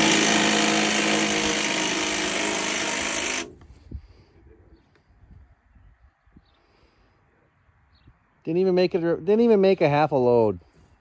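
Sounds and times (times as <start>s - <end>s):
power tool humming: 0.0s - 3.6s.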